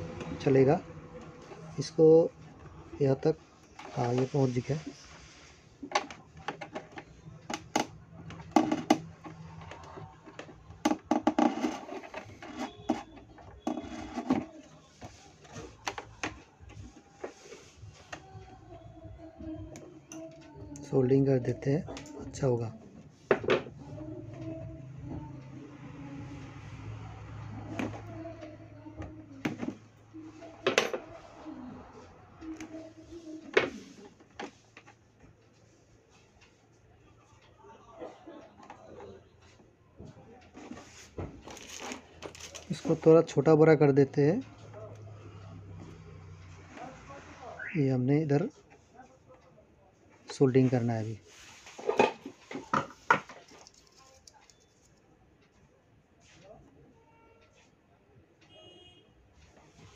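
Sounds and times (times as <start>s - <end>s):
clicks and knocks handling parts: 5.8s - 17.4s, 51.7s - 55.0s
cables clicking and rustling: 41.4s - 43.0s, 52.2s - 55.5s.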